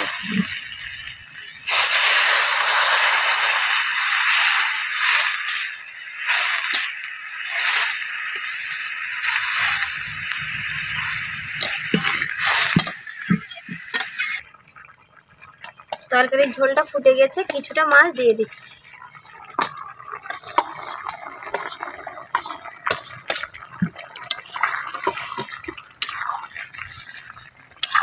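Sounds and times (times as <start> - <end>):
water sizzling in hot pan: 0.0 - 28.0
ladle stirring curry: 17.5 - 26.4.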